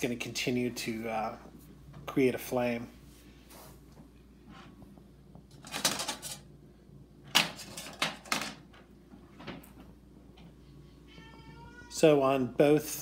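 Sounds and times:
light metal clatter and scraping: 0:05.5 - 0:06.5, 0:07.4 - 0:08.6.

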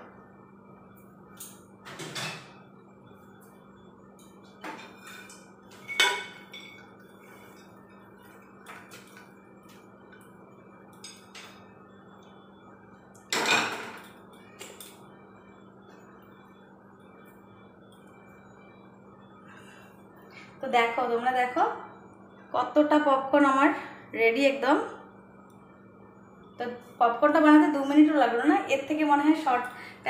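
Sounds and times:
faint low hum: 0:00.0 - 0:30.0
dishes and utensils clinking: 0:01.9 - 0:02.6, 0:04.6 - 0:07.8.

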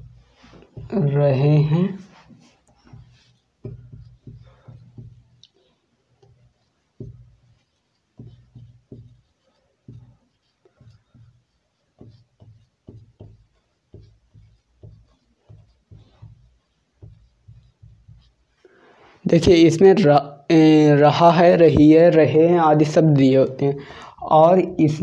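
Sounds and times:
marker writing on whiteboard: 0:00.0 - 0:19.6.

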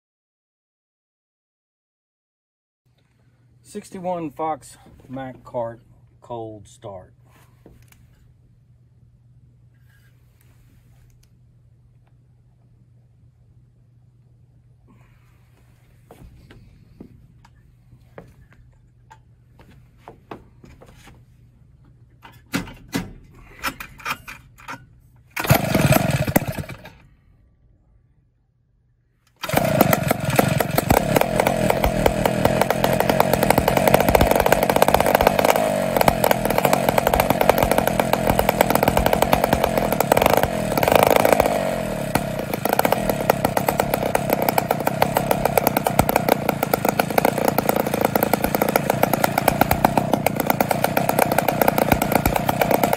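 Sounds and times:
kart engines running: 0:25.4 - 0:27.0, 0:29.4 - 0:52.9.

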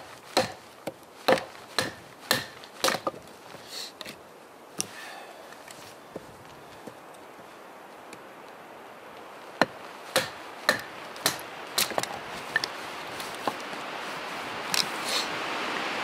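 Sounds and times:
steady hiss: 0:00.0 - 0:16.0.

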